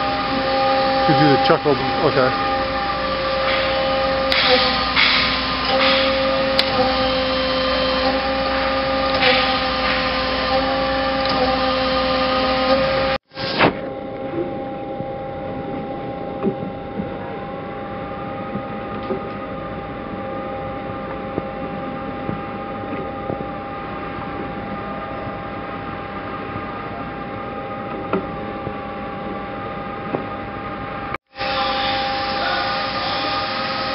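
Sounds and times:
constant whining tones: 0.0 - 33.9
lathe machine hum: 0.0 - 33.9.

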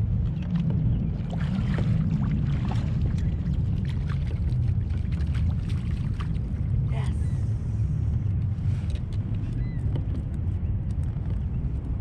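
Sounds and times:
water splashing and dripping: 0.0 - 6.9
wind rumble on microphone: 0.0 - 12.0.

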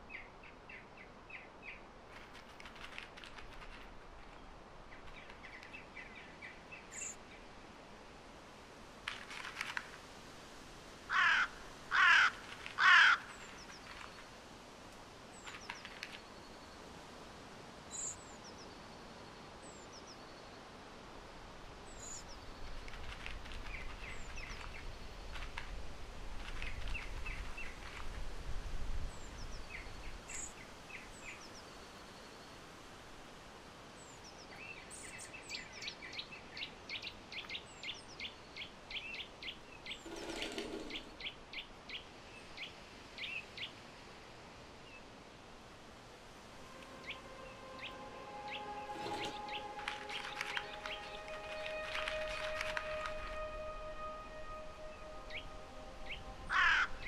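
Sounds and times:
songbirds chirping: 0.0 - 57.0
crow cawing: 11.1 - 13.3, 56.5 - 57.0.

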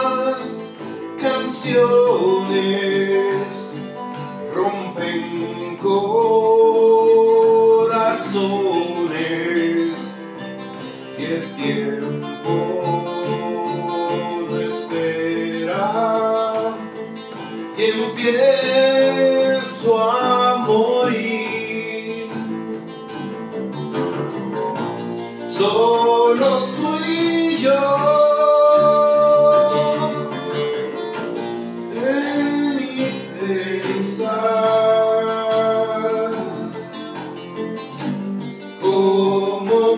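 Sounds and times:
man singing rock ballad: 0.0 - 22.7, 25.4 - 31.0, 31.6 - 37.0, 38.8 - 39.9
acoustic bass guitar: 0.0 - 39.9
classical guitar: 0.0 - 39.9.

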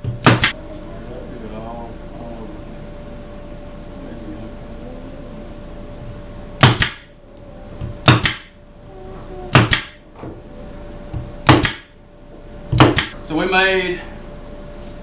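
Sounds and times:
faint steady hum: 0.0 - 15.0
nail gun firing: 0.2 - 0.5, 6.6 - 7.1, 8.0 - 8.5, 9.5 - 10.0, 11.4 - 11.9, 12.8 - 13.2.

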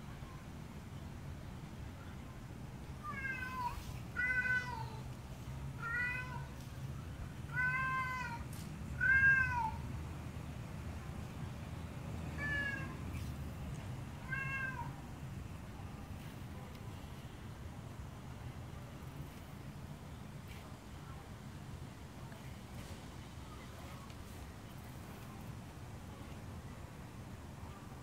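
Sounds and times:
cat meowing loudly: 3.1 - 5.0, 5.8 - 6.5, 7.5 - 8.4, 9.0 - 9.8, 12.4 - 13.0, 14.2 - 15.0.

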